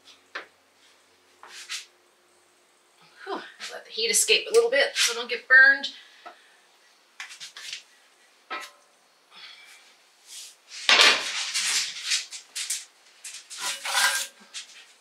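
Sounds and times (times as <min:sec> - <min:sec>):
metal cookware clattering and scraping: 0:08.5 - 0:08.8, 0:10.9 - 0:14.8.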